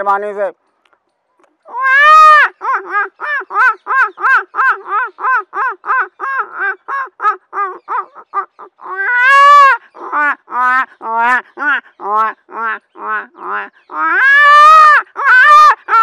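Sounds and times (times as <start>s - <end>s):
man mimicking baby crying: 1.7s - 16.0s.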